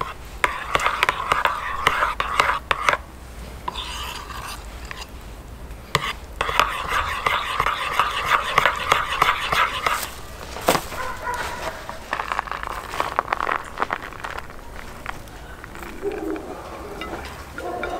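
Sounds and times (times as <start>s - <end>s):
spoon stirring thick sauce: 0.0s - 5.2s, 5.9s - 10.3s.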